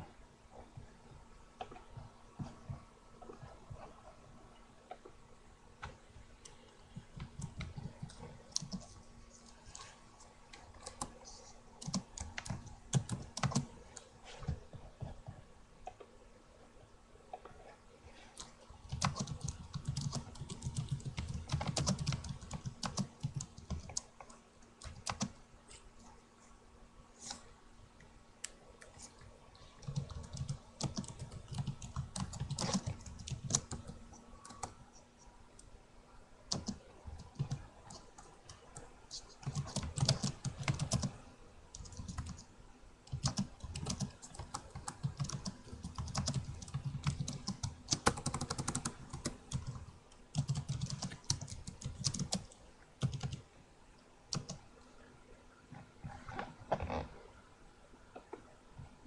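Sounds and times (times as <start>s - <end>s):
keyboard typing clicks: 10.6s - 11.2s, 11.8s - 14.1s, 18.4s - 25.4s, 29.8s - 34.8s, 36.5s - 42.4s, 43.1s - 53.4s, 54.3s - 54.6s.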